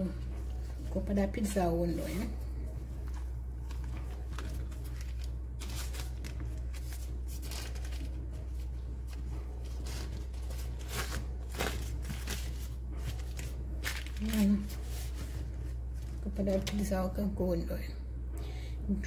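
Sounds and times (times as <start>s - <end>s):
baking paper rustling: 0.0s - 17.0s
steady low hum: 0.0s - 19.0s.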